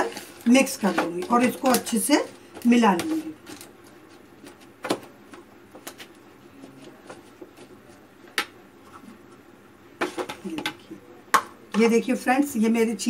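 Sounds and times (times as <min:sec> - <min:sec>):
metal spoon stirring in plastic bowl: 0:00.0 - 0:04.8.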